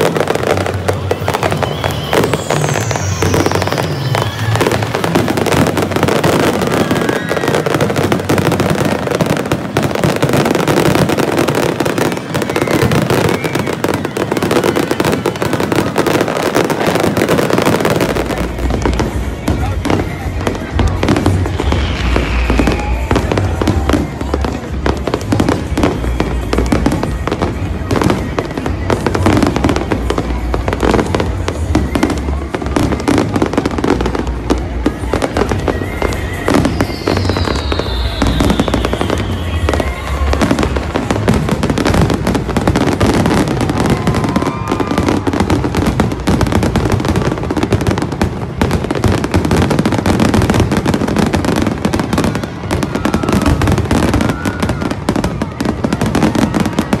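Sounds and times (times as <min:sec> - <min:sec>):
firework falling whistle: 0:00.0 - 0:30.2, 0:34.8 - 0:47.7
fireworks bangs and crackling: 0:00.0 - 0:57.0
music: 0:00.0 - 0:57.0.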